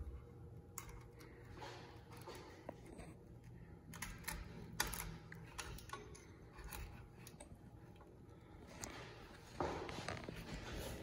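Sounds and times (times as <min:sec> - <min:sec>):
clicks and knocks of handled parts: 0:00.7 - 0:08.1.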